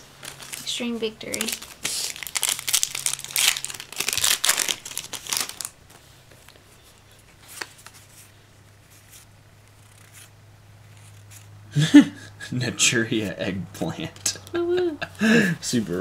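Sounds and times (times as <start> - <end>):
foil wrapper crinkling and tearing: 0.2 - 5.8.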